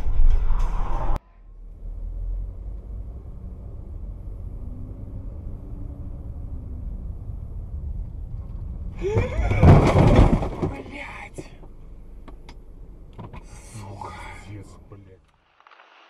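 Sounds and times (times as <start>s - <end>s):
car engine and road noise: 0.0s - 16.0s
sudden loud commotion: 8.4s - 11.0s.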